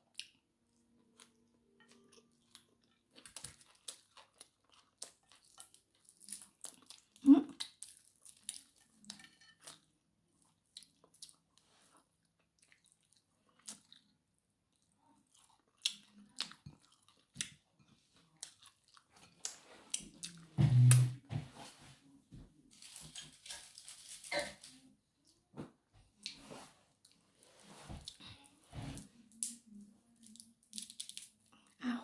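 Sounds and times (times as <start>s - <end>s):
chewing and lip smacks: 0.1s - 9.8s, 14.7s - 20.5s.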